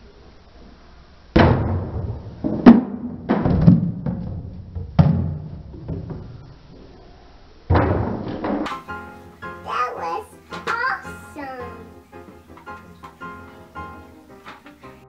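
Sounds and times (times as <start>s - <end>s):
cardboard blocks thudding: 1.4s - 6.4s, 7.7s - 8.7s.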